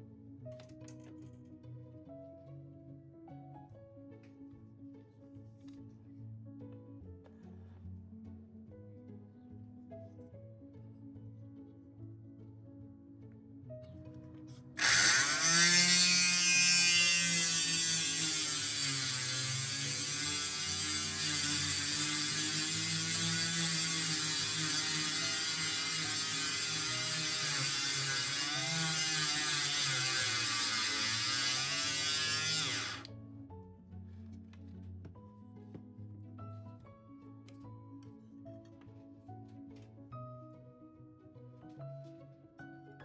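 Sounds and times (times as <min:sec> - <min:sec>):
rotary tool grinding glass: 0:14.8 - 0:33.1.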